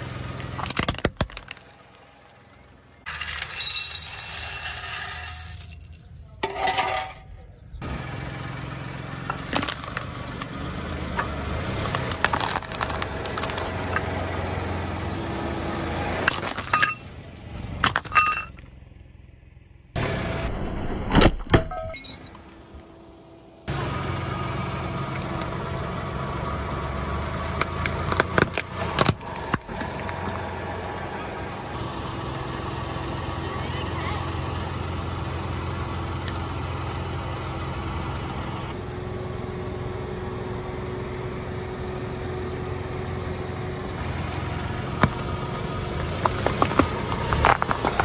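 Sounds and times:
car engine humming: 0.0 - 20.8, 21.9 - 48.0
plastic cracking under tire: 0.4 - 1.9, 11.8 - 14.1, 46.0 - 48.0.

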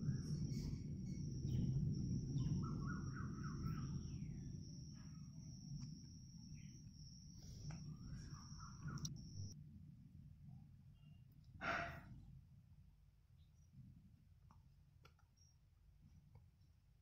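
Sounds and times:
low rumble: 0.0 - 9.6
thin high whine: 0.0 - 9.6
myna chirping: 6.5 - 9.6.

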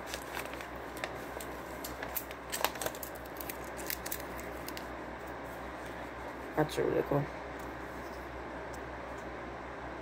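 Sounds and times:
paper crinkling and clicks: 0.0 - 4.9.

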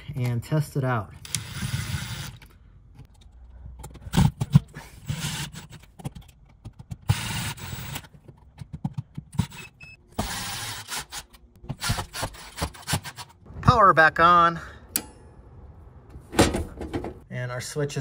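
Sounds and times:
handling knocks and clicks: 5.7 - 7.1, 8.0 - 9.5, 16.1 - 17.2.

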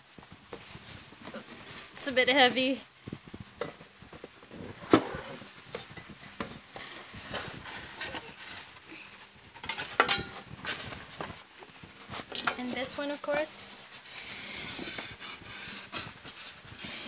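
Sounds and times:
metal rack and glass clinking: 9.6 - 10.9.

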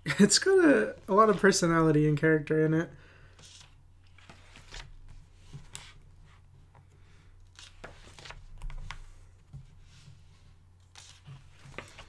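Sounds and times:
paper pages rustling: 3.3 - 6.7, 7.4 - 12.0.

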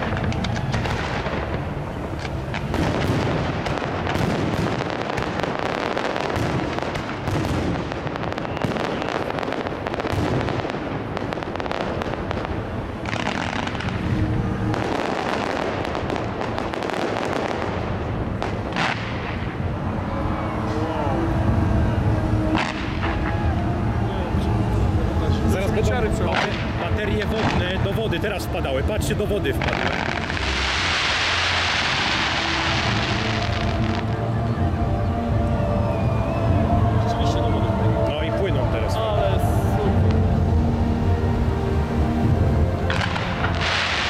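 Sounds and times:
fireworks bangs and cracks: 0.0 - 20.8, 22.4 - 23.6, 25.4 - 34.4, 42.2 - 44.0
rumbling hiss of launches: 29.4 - 34.2.

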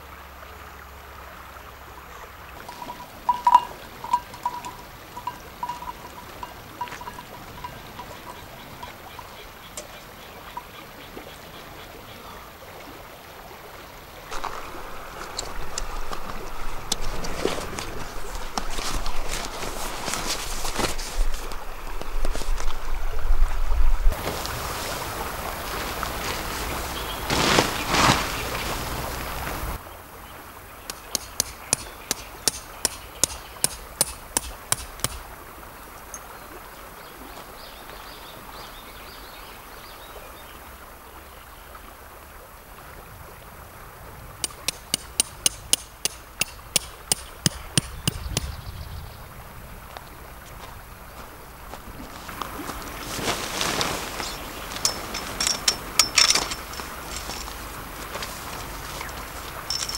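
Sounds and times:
tarp rustling: 14.3 - 23.0, 23.6 - 29.8, 50.6 - 59.9
hammer striking pegs: 30.9 - 35.2, 44.4 - 48.5.

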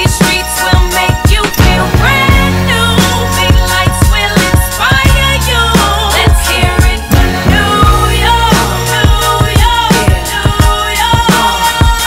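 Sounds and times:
hip hop drum beat: 0.0 - 12.0
gliding melody line: 4.8 - 11.0.

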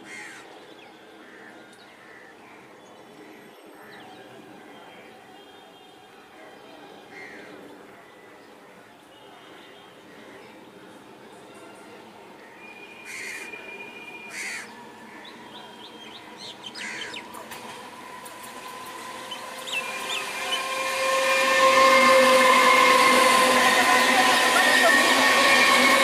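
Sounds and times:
electric train whine: 9.9 - 26.0
birds chirping: 12.6 - 22.0
wheels on rails: 16.2 - 26.0.

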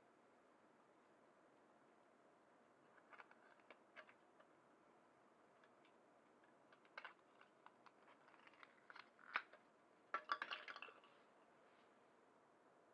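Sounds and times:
plastic parts clicking and tapping: 5.6 - 11.1
plastic parts rattling: 6.7 - 11.2.

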